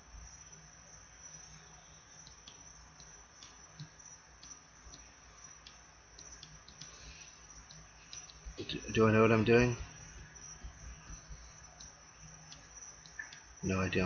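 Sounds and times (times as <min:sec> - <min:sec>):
low steady hiss: 0:00.0 - 0:14.0
computer mouse clicks: 0:02.2 - 0:07.0, 0:07.6 - 0:08.6, 0:11.0 - 0:13.5.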